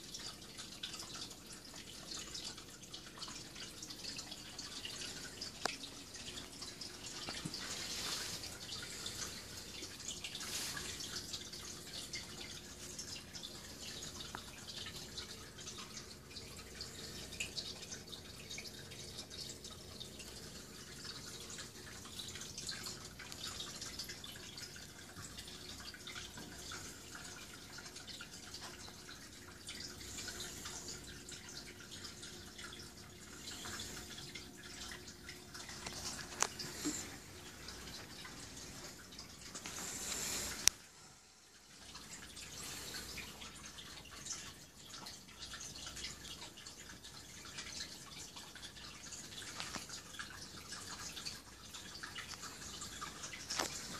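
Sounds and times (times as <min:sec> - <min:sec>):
aquarium water trickling and dripping: 0:00.0 - 0:53.9
faint steady hum: 0:00.0 - 0:53.9.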